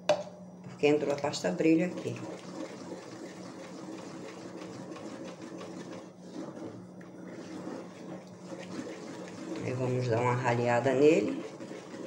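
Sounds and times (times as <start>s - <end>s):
wooden spoon scraping metal pot: 1.8s - 12.0s.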